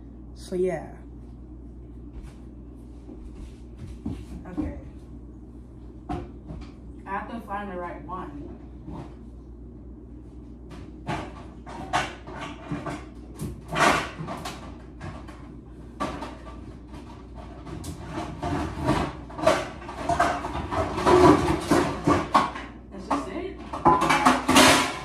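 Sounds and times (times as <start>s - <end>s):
metal pans clattering: 17.7s - 25.0s.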